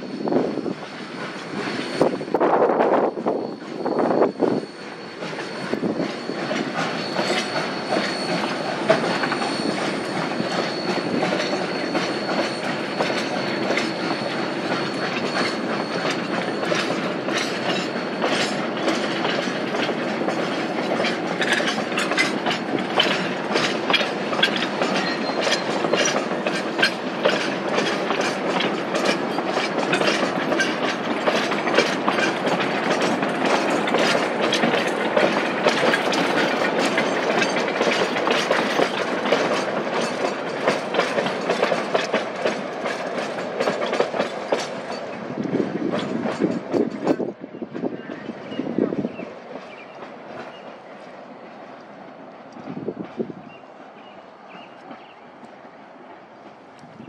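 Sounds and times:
wheels clicking over rail joints: 0:00.6 - 0:57.0
thin high squeal: 0:01.6 - 0:19.6, 0:20.4 - 0:40.2.

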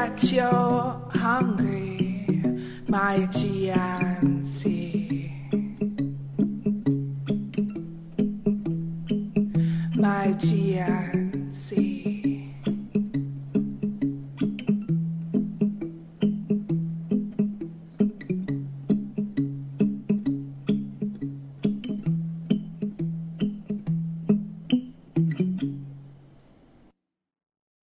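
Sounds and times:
guitar fingerpicking: 0:00.0 - 0:26.7.

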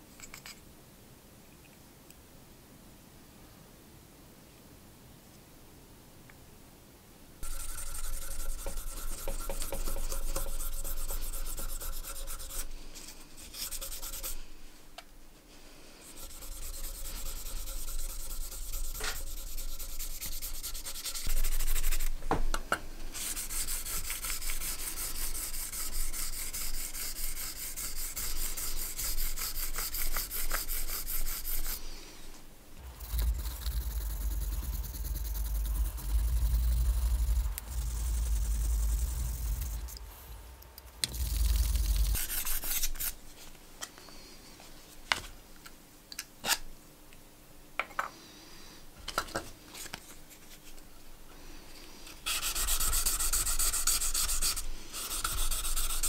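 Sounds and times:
sanding block scraping metal: 0:07.4 - 0:12.7, 0:13.4 - 0:14.5, 0:16.0 - 0:22.1, 0:23.2 - 0:31.8, 0:41.1 - 0:43.2, 0:52.2 - 0:56.0
low hum: 0:32.8 - 0:42.5.

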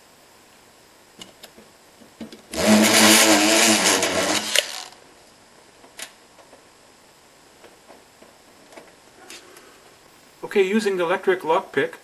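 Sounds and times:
electric lock pick buzzing: 0:02.5 - 0:05.0.

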